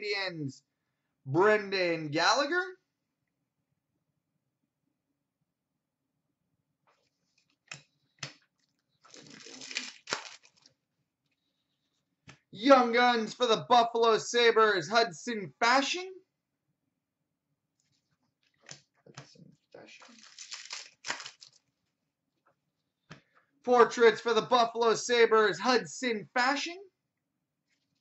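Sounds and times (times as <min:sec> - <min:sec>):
trading cards rustling: 0:07.0 - 0:10.7, 0:20.0 - 0:21.6
wrapper crackling and tearing: 0:09.0 - 0:10.7, 0:20.0 - 0:21.6.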